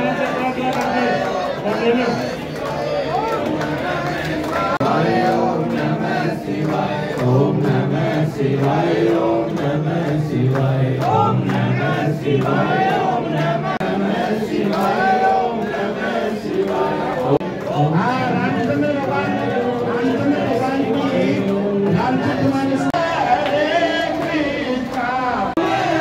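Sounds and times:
crowd singing devotional chant: 0.0 - 26.0
hand clapping: 2.4 - 20.4.

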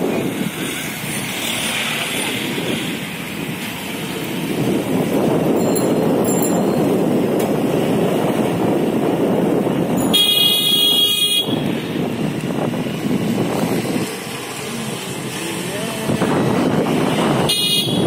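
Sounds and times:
road and wind noise: 0.0 - 18.0
vehicle horn: 10.0 - 11.8, 17.4 - 18.0.

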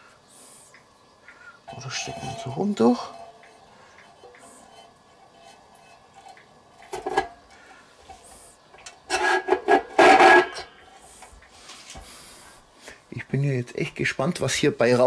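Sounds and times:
metal rod scraping through metal: 1.7 - 7.4, 9.1 - 10.7.

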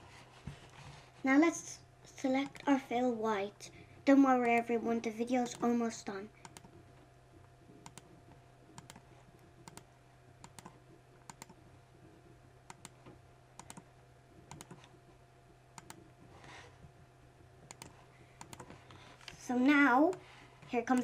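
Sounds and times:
low steady hum: 0.0 - 21.0
computer mouse clicks: 2.4 - 2.7, 6.4 - 6.8, 7.8 - 8.1, 8.7 - 11.6, 12.7 - 13.9, 14.5 - 15.0, 15.8 - 16.0, 17.7 - 19.4.

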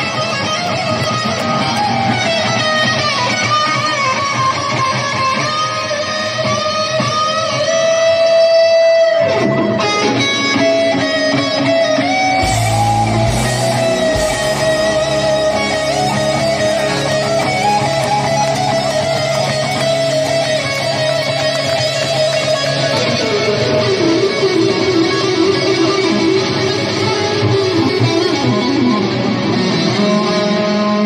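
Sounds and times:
live electric guitar solo: 0.0 - 31.0
low bass notes: 12.4 - 26.8.

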